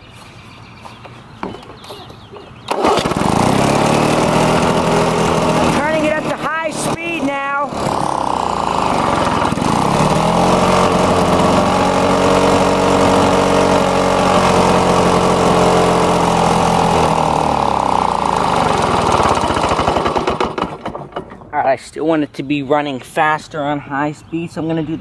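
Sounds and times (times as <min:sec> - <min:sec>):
lawn mower engine running: 0:02.7 - 0:21.4.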